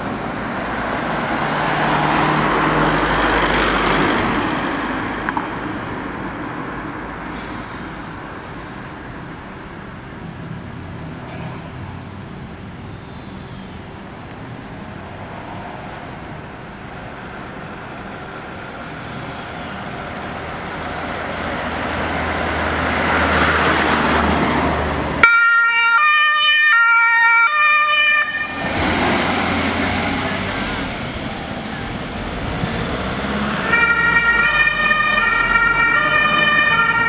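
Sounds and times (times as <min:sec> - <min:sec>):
ambulance engine running: 0:00.0 - 0:37.0
two-tone siren: 0:25.2 - 0:28.7, 0:33.5 - 0:37.0.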